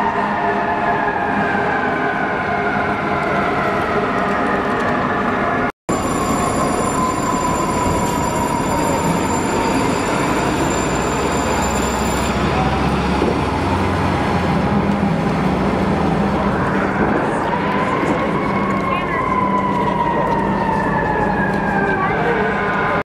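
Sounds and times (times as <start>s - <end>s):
fire engine siren winding down: 0.0s - 23.0s
truck engine rumble: 5.9s - 23.0s.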